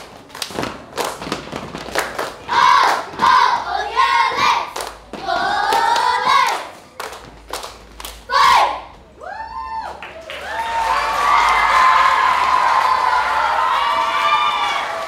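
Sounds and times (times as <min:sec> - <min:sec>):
children clapping and stomping: 0:00.0 - 0:03.7, 0:04.4 - 0:08.3
children chanting shouts: 0:02.5 - 0:04.8, 0:05.4 - 0:06.7, 0:08.3 - 0:08.9.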